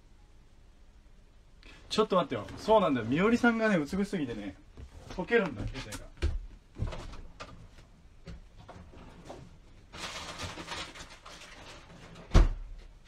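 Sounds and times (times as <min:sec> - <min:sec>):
rustling: 0:08.6 - 0:12.3.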